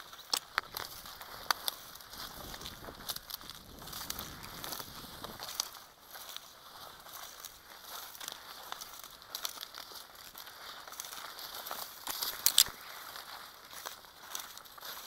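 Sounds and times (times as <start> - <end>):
stems snapping: 0.0 - 5.8, 8.2 - 12.9
dry weeds crackling underfoot: 0.0 - 15.0.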